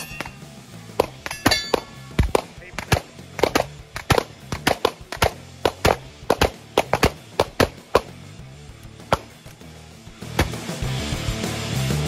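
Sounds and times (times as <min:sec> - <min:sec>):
background music: 0:00.0 - 0:12.0
pistol shots: 0:01.0 - 0:08.2.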